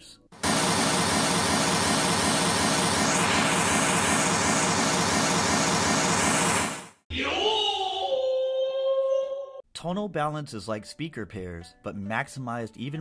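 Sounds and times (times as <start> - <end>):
pink noise test signal: 0.4 - 6.9.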